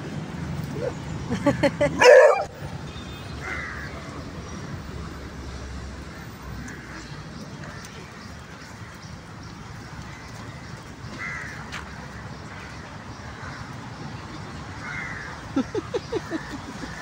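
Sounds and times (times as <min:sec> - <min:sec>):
outdoor background noise: 0:00.0 - 0:17.0
dog yelping: 0:02.0 - 0:02.5.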